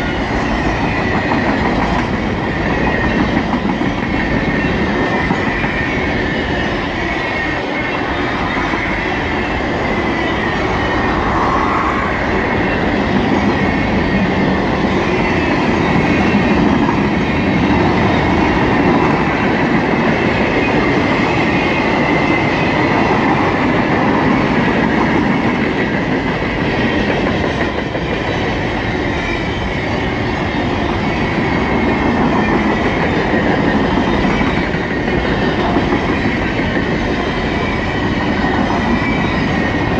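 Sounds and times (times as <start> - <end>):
train wheels rumbling on rails: 0.0 - 39.9
high wheel squeal: 28.8 - 39.9.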